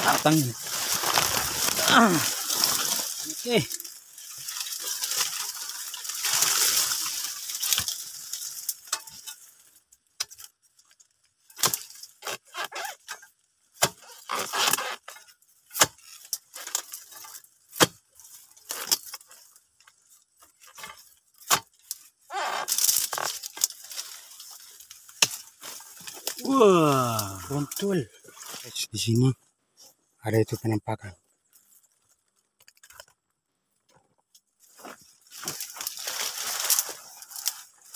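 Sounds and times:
dry fronds rustling: 0.0 - 30.5, 31.2 - 37.9
chisel chopping palm stalks: 11.5 - 19.4, 20.4 - 27.6.

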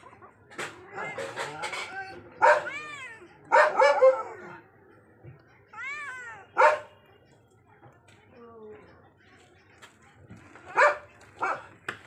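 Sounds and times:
cats meowing: 1.9 - 3.5, 5.7 - 6.5.

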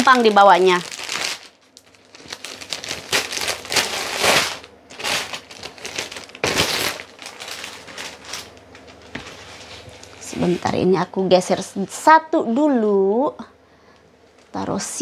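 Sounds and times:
plastic bag crinkling: 0.0 - 10.7.

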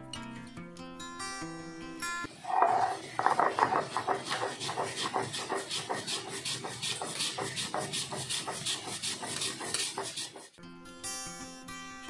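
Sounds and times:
stone roller grinding on stone slab: 2.3 - 10.6.

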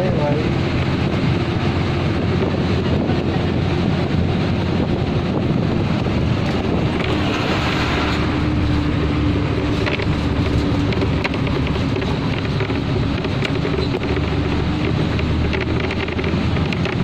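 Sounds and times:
engine drone: 0.0 - 17.0
road noise: 0.0 - 17.0
wind rushing: 0.5 - 11.8.

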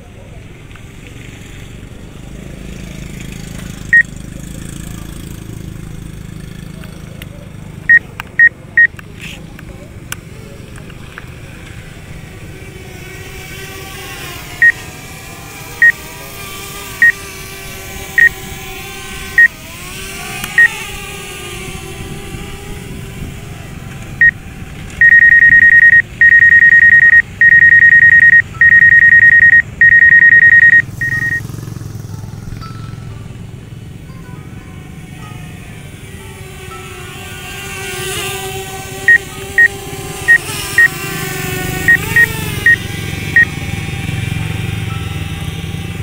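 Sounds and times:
long warning beeps: 18.2 - 18.4, 25.0 - 31.4, 39.1 - 39.7, 41.9 - 43.5
short warning beeps: 25.0 - 31.4, 41.9 - 43.5.

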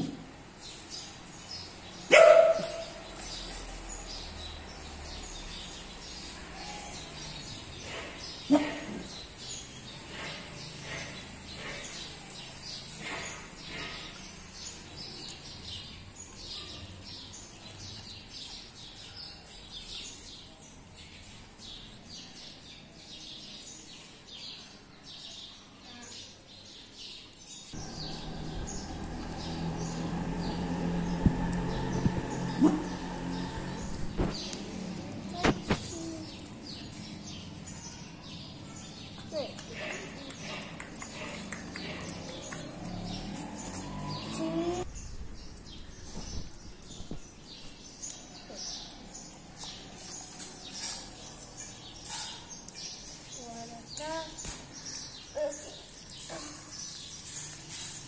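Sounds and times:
small birds chirping: 0.0 - 58.0
dog barks: 2.1 - 3.0, 32.5 - 33.0.

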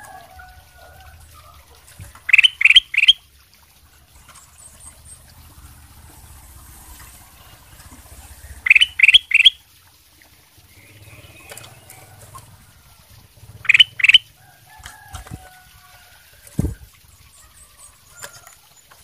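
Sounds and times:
bird twitter: 2.3 - 3.2, 8.3 - 9.6, 13.6 - 14.3
bird whistling rising notes: 2.3 - 3.2, 8.4 - 9.6, 13.6 - 14.3.

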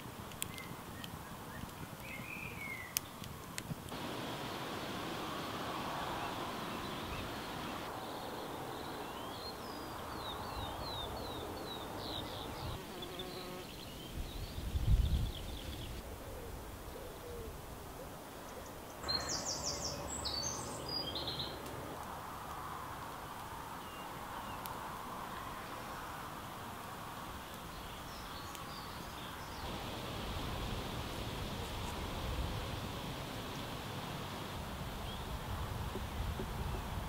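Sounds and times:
wind through trees: 0.0 - 37.0
birds singing: 0.4 - 3.2, 3.9 - 16.0, 18.4 - 21.6, 27.5 - 29.8.

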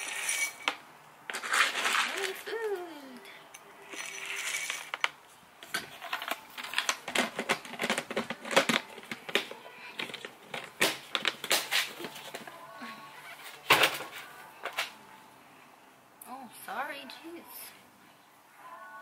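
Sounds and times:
pellets rattling into a ceramic bowl: 1.3 - 2.5, 3.9 - 5.0
rabbit crunching pellets: 3.8 - 5.2.

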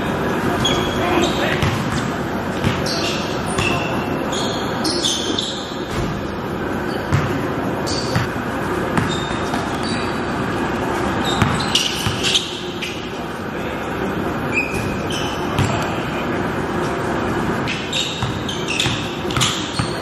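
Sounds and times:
sneakers squeaking on court: 0.1 - 13.2, 14.4 - 16.1, 17.6 - 20.0
basketball bouncing on gym floor: 0.6 - 4.0, 7.1 - 10.0, 11.2 - 12.5, 14.7 - 15.9, 17.6 - 20.0.

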